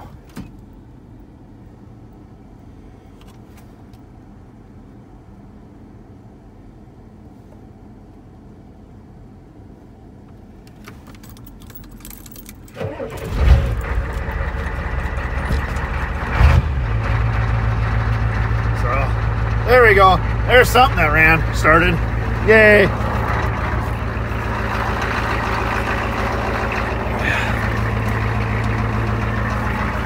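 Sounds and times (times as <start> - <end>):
diesel engine cranking and running: 10.8 - 30.0.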